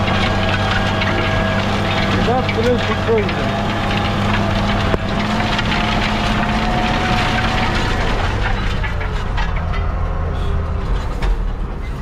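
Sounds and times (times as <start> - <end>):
diesel engine droning: 0.0 - 12.0
rattles and knocks: 0.0 - 12.0.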